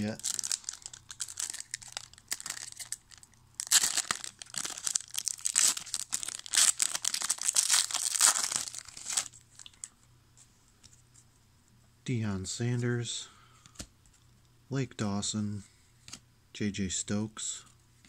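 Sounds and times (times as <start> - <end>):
foil wrapper tearing and crinkling: 0.0 - 9.4.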